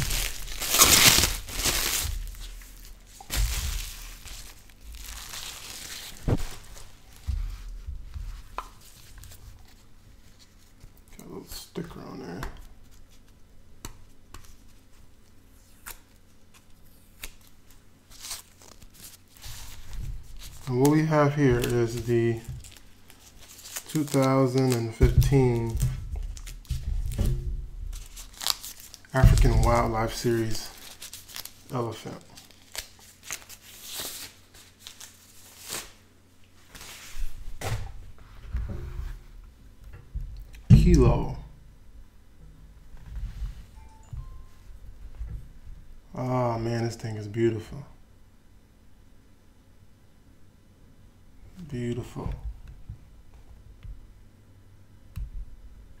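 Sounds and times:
soft low bumps and rumble: 0:06.1 - 0:09.4, 0:25.0 - 0:28.3, 0:37.8 - 0:46.1.

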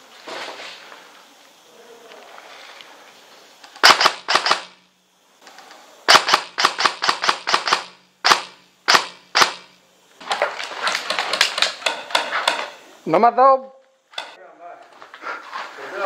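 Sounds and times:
airsoft guns firing: 0:03.8 - 0:04.8, 0:06.1 - 0:09.8.

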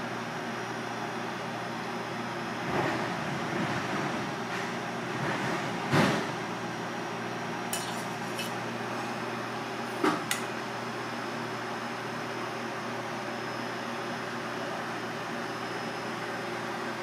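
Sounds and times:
steady background hum: 0:00.0 - 0:17.0
metal chopsticks tapping strainer: 0:07.8 - 0:08.5.

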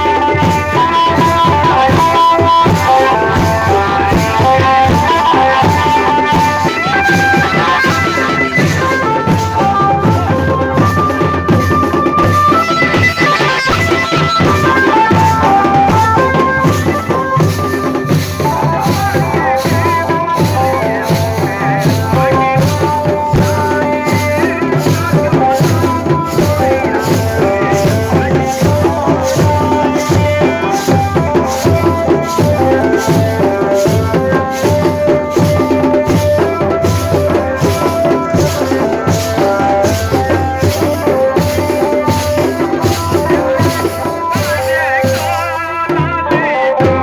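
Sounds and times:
steady drum beat: 0:00.0 - 0:47.0.

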